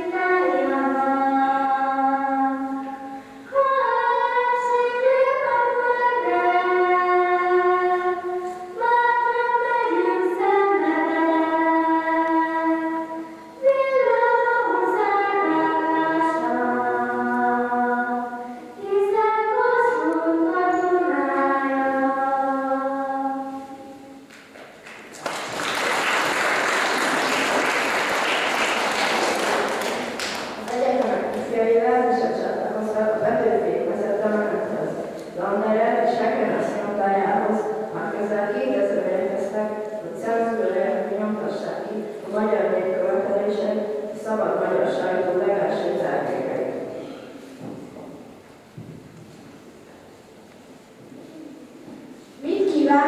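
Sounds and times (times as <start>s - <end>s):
girls singing unaccompanied: 0.0s - 24.3s
applause: 24.3s - 31.5s.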